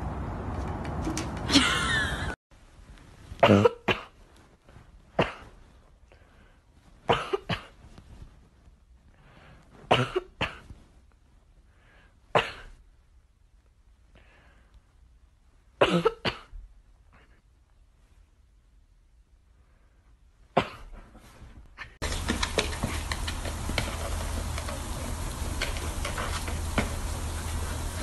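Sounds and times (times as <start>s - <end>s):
person coughing: 3.4s - 4.2s, 5.2s - 5.6s, 7.1s - 7.8s, 9.9s - 10.7s, 15.8s - 16.6s, 20.6s - 21.4s.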